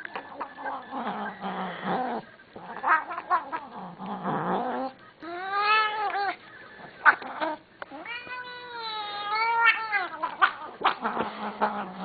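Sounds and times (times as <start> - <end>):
cat yowling: 7.0 - 11.0
cat meowing: 7.9 - 10.5.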